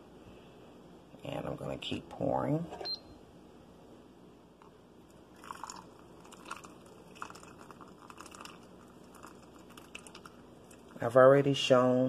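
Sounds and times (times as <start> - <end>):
hot water trickling into mug: 5.3 - 11.0.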